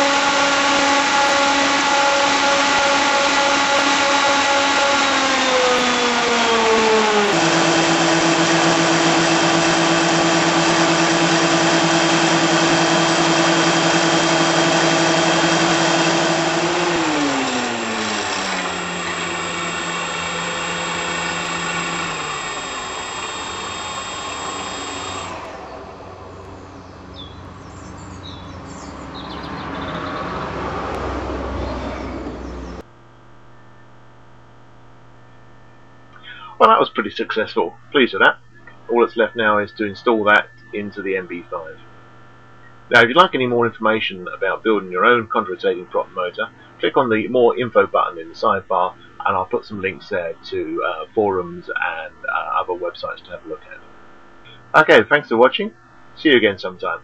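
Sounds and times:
electric motor and propellers whining: 0.0 - 32.8.

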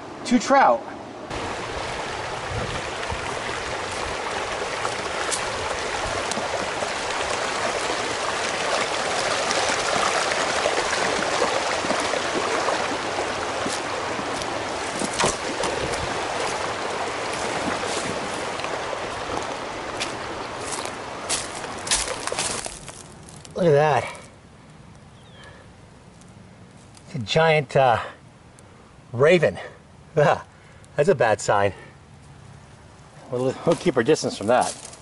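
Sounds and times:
stream rushing over rapids: 0.0 - 23.9.

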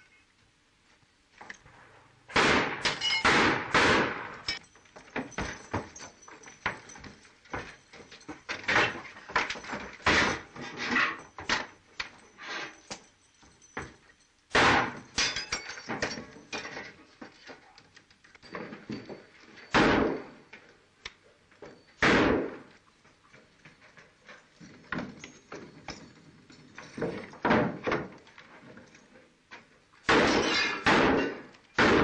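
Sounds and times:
rapid revolver gunfire: 2.3 - 4.4, 22.0 - 22.6, 30.1 - 32.0
table crashing over: 8.6 - 11.7.

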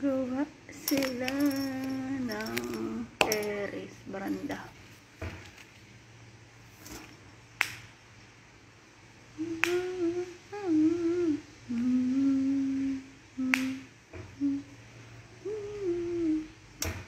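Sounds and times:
woman humming: 0.0 - 4.6, 9.3 - 16.7.

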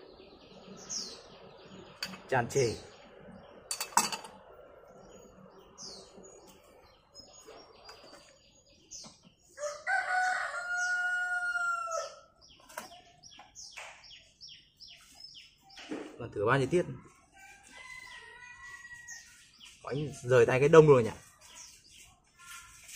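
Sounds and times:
small birds chirping: 0.0 - 22.9
rooster crowing: 9.6 - 12.3, 17.4 - 19.3.

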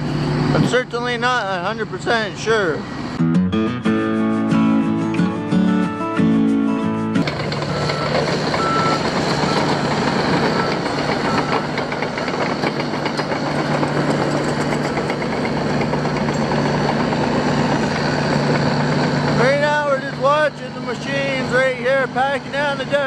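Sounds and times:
diesel engine running: 0.0 - 23.0
track clatter: 7.2 - 23.0
reversing alarm beeps: 7.7 - 12.9.

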